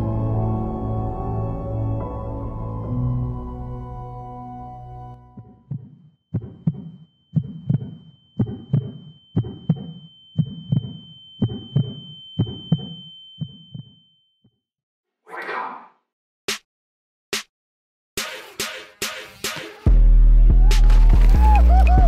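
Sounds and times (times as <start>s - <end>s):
heartbeat double thumps: 5.3s - 14.0s
high-pitched ringing tone: 6.4s - 14.5s.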